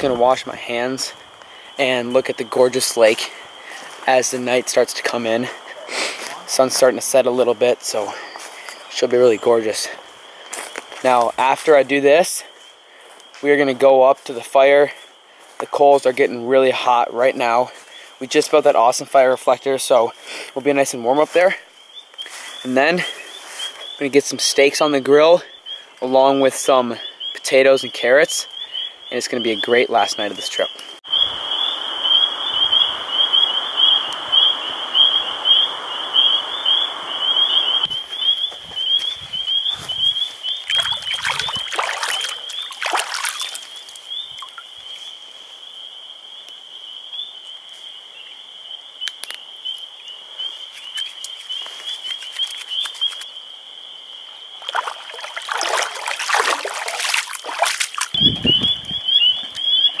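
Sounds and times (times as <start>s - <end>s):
frogs trilling: 0.0s - 60.0s
water splashing from hand washing: 40.6s - 44.6s, 54.6s - 58.2s.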